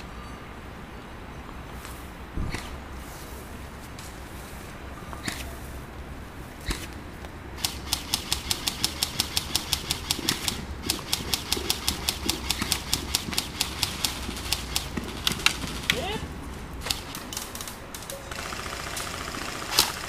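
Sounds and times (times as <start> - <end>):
airsoft gun shots: 7.6 - 16.2, 18.3 - 20.0.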